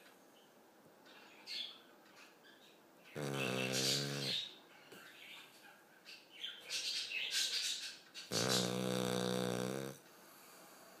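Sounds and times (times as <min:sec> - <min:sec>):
small birds chirping: 0:00.3 - 0:09.9
dog snoring: 0:03.1 - 0:04.5, 0:08.3 - 0:11.0.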